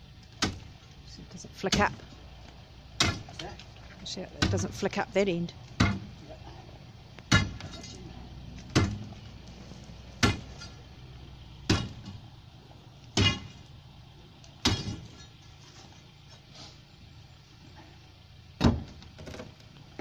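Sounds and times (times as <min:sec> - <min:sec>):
steel bar striking ground: 0:07.3 - 0:08.0, 0:10.2 - 0:10.8, 0:13.2 - 0:13.6, 0:14.6 - 0:15.4.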